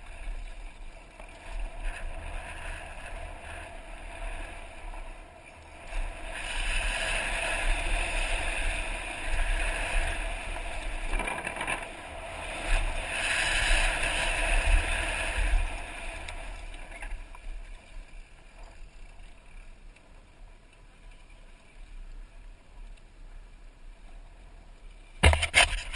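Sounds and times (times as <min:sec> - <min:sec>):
tyres rolling on dirt trail: 0:00.0 - 0:19.2
wind rushing over camera: 0:01.2 - 0:17.7
bike knocks: 0:25.2 - 0:25.8.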